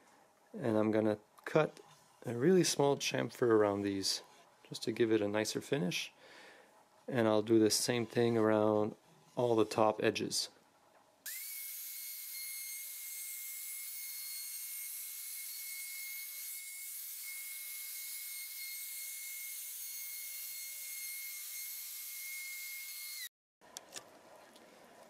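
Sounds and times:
router motor whine: 0:11.3 - 0:23.3.

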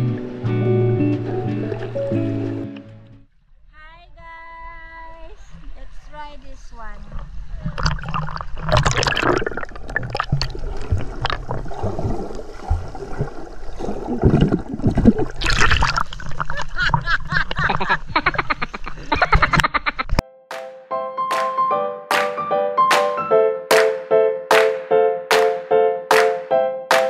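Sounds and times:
seawater sloshing and splashing: 0:00.0 - 0:02.8, 0:07.3 - 0:17.7
loud water splash: 0:07.7 - 0:16.6.

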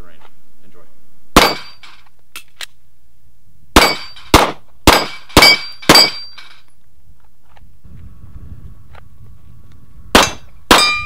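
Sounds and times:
pistol shots: 0:01.4 - 0:01.9, 0:03.8 - 0:06.3, 0:10.1 - 0:11.0.

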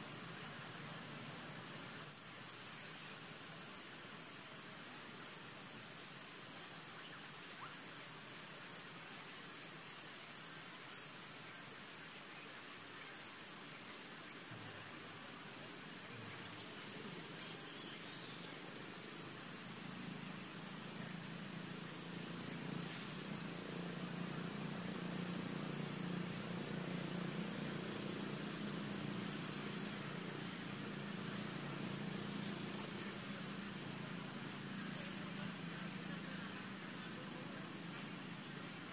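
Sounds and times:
faint low hum: 0:00.0 - 0:38.9
high-pitched insect chorus: 0:00.0 - 0:38.9.

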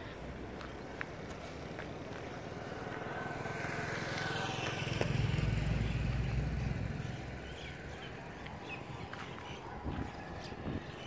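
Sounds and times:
motorcycle passing by: 0:00.4 - 0:09.1.

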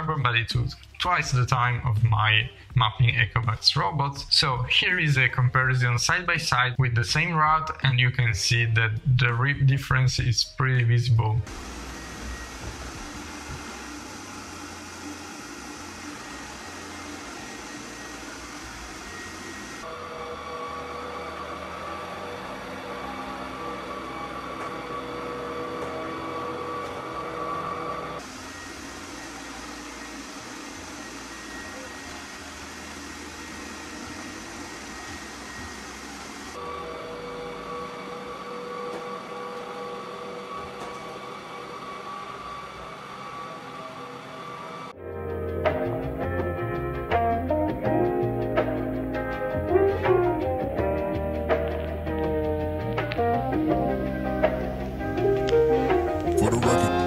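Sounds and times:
faint high whine: 0:00.0 - 0:47.1
robot vacuum low hum: 0:10.8 - 0:57.0
robot vacuum whirring hiss: 0:11.5 - 0:19.9, 0:28.2 - 0:36.6.

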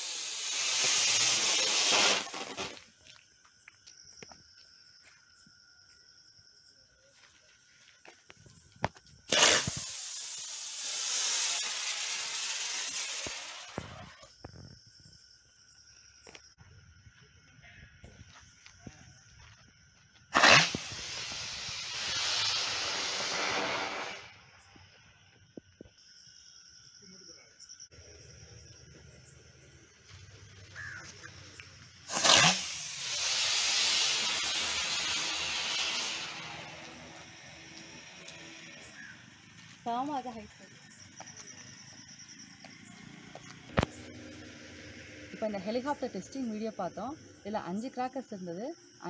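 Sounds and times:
firework hiss of sparks: 0:00.0 - 0:02.9, 0:09.2 - 0:14.4, 0:20.3 - 0:25.0, 0:30.0 - 0:39.9.

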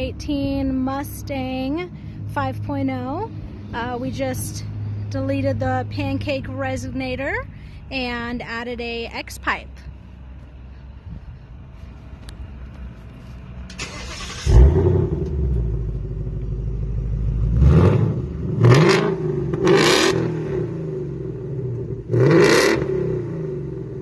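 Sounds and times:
car engine starting and revving: 0:13.6 - 0:24.0.

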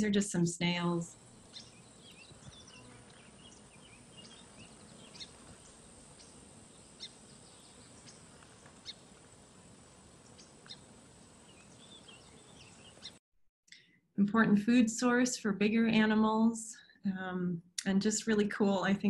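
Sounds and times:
bird chirps: 0:01.1 - 0:09.1, 0:10.2 - 0:13.8.

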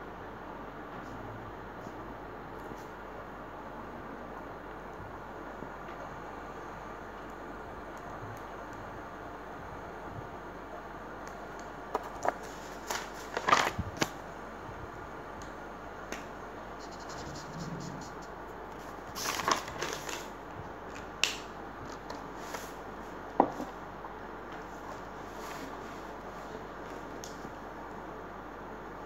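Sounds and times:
notebook pages rustling: 0:12.0 - 0:14.2, 0:18.8 - 0:20.3.

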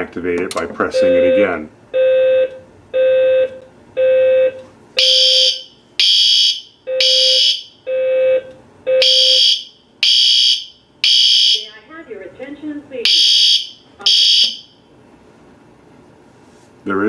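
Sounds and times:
low fire alarm horn pulses: 0:01.0 - 0:11.7, 0:13.0 - 0:14.8
high shrill alarm horn tone: 0:05.0 - 0:07.7, 0:09.0 - 0:11.5.

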